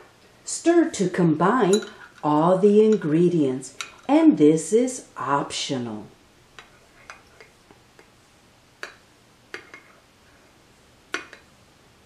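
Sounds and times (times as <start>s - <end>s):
spoon clinking against glass cup: 1.6s - 2.1s.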